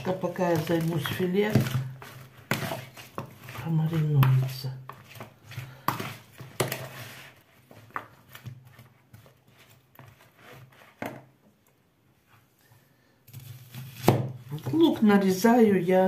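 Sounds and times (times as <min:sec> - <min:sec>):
metal spoon scraping plastic bowl: 0:00.0 - 0:11.2.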